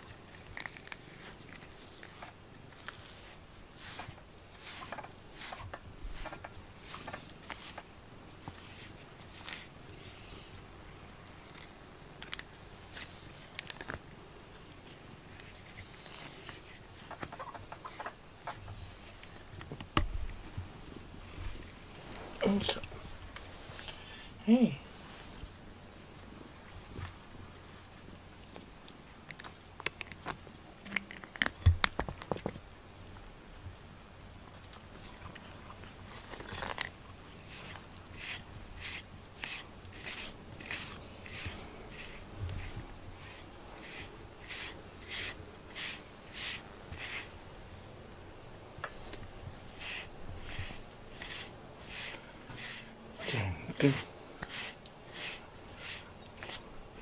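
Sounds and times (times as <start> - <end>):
brush scratching cat fur: 0.1 - 10.4, 12.8 - 13.9, 14.9 - 19.6, 35.0 - 47.4, 49.0 - 57.0.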